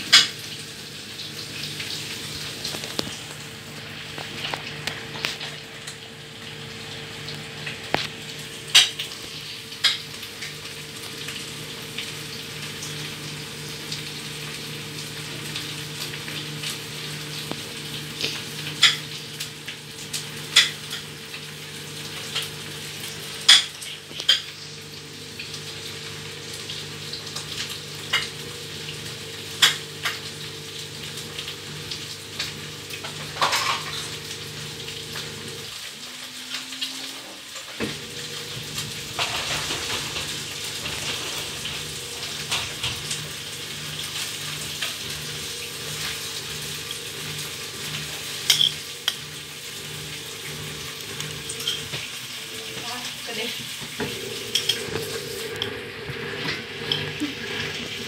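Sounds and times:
washing machine motor hum: 0:00.0 - 0:58.0
water and clothes sloshing in drum: 0:34.8 - 0:43.8.

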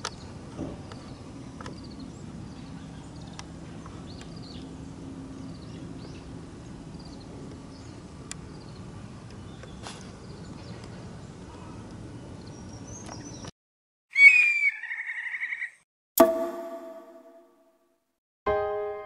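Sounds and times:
falling whistle sound effect: 0:14.1 - 0:15.6
electric piano chord: 0:18.5 - 0:19.0.

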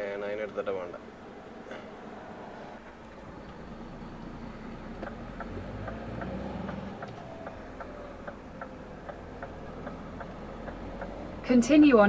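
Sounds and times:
engine humming: 0:00.0 - 0:12.0
turn signal ticking: 0:02.9 - 0:12.0.

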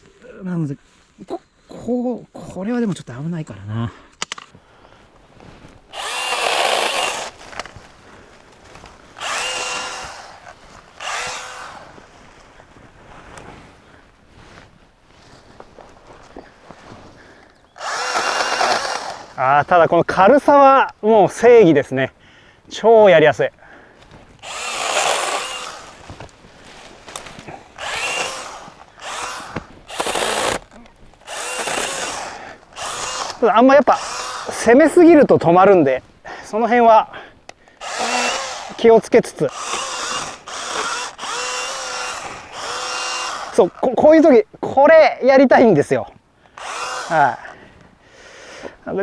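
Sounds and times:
cordless chainsaw whining: 0:05.9 - 0:07.7, 0:09.1 - 0:12.0, 0:17.8 - 0:19.6, 0:24.4 - 0:26.1, 0:27.1 - 0:34.9, 0:37.7 - 0:43.8, 0:46.5 - 0:47.6.

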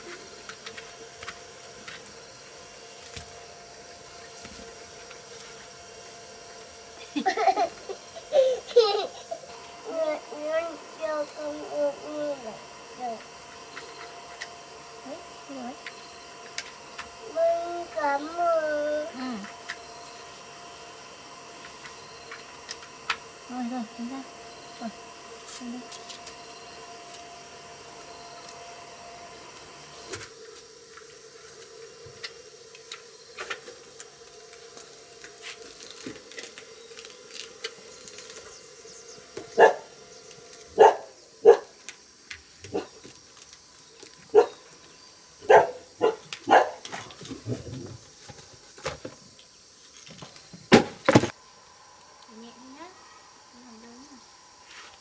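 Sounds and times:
faint hum: 0:00.0 - 0:55.0
dog barking: 0:39.6 - 0:39.9, 0:40.8 - 0:41.7, 0:44.3 - 0:44.6, 0:45.5 - 0:46.8.

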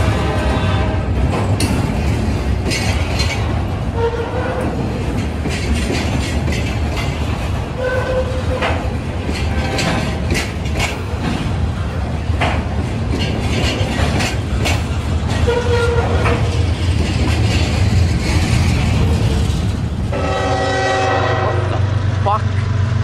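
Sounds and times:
wheels clacking over rail joints: 0:00.0 - 0:20.7
freight train rumbling: 0:00.0 - 0:23.0.

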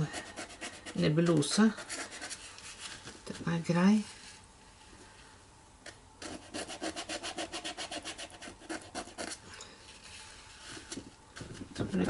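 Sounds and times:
brush scrubbing on paper: 0:00.0 - 0:03.0, 0:06.2 - 0:09.4.

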